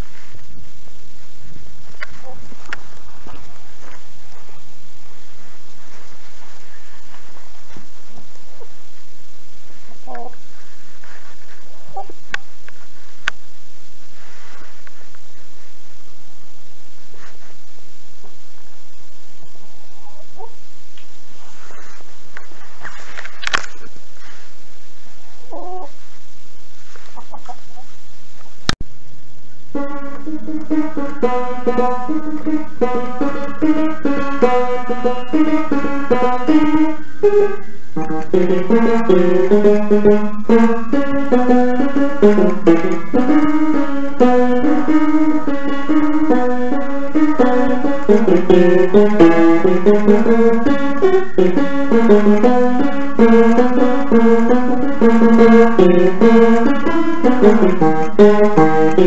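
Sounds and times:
piano tune: 0:29.6 - 0:59.0.

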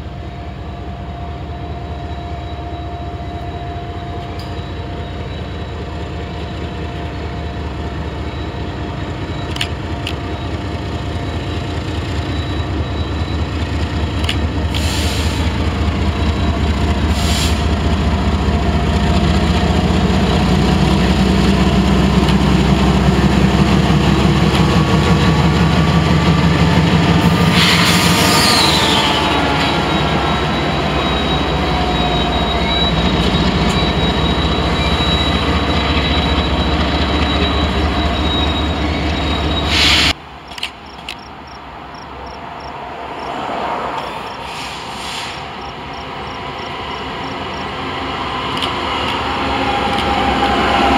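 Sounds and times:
locomotive engine drone: 0:00.0 - 0:50.9
high screech falling in pitch: 0:27.4 - 0:40.1.

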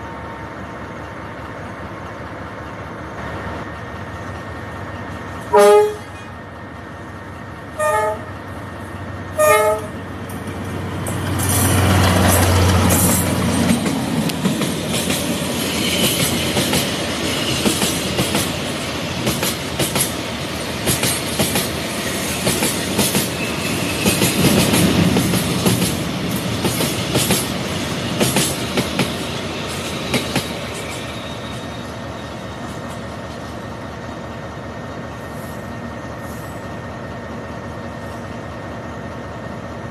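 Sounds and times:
train passing with rumble: 0:00.0 - 0:39.9
train horn tooting: 0:05.5 - 0:06.3, 0:07.8 - 0:08.4, 0:09.4 - 0:10.0
wheels rattling on track: 0:08.2 - 0:34.2.

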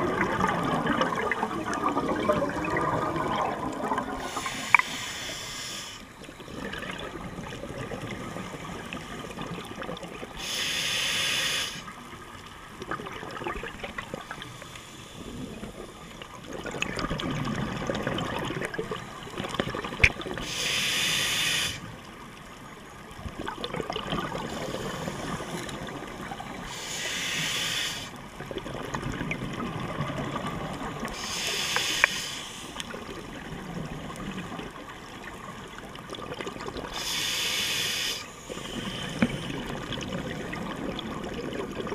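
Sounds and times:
gurgling exhaled bubbles: 0:00.0 - 0:05.0, 0:06.2 - 0:10.5, 0:12.8 - 0:14.6, 0:15.2 - 0:20.8, 0:23.2 - 0:32.1, 0:32.7 - 0:37.7, 0:38.4 - 0:41.9
regulator breathing hiss: 0:04.2 - 0:06.2, 0:10.4 - 0:12.0, 0:14.4 - 0:15.6, 0:20.4 - 0:22.0, 0:24.5 - 0:25.6, 0:26.6 - 0:28.2, 0:31.1 - 0:32.9, 0:36.9 - 0:39.6.

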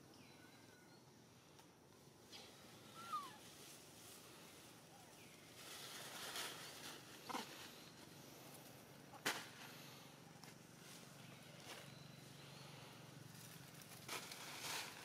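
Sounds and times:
faint animal call: 0:02.3 - 0:05.2
soft rustle: 0:02.4 - 0:15.0.

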